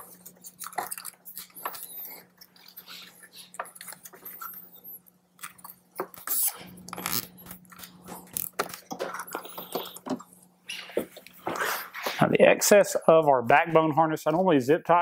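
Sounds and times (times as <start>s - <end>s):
wires rustling: 0.0s - 12.3s
faint steady hum: 0.0s - 15.0s.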